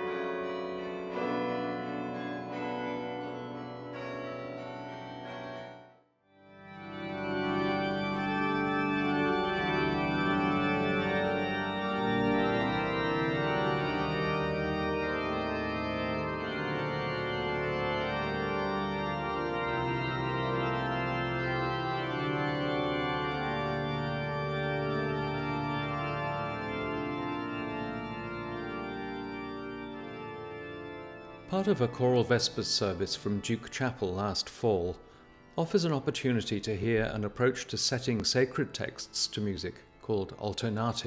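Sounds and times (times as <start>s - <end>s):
pipe organ chords: 0.0s - 41.0s
organ bass notes: 6.5s - 34.7s.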